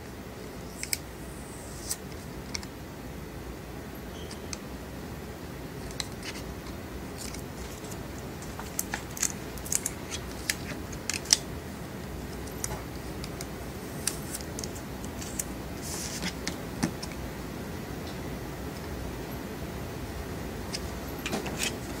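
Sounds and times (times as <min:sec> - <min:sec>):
film rustling: 0:05.8 - 0:11.5, 0:12.3 - 0:17.2.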